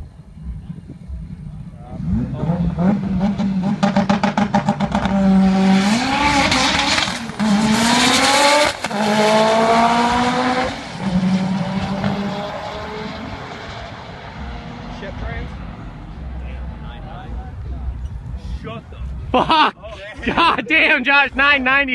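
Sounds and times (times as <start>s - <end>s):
car engine revving through gears: 1.9s - 16.3s
car engine popping on limiter: 2.6s - 9.3s.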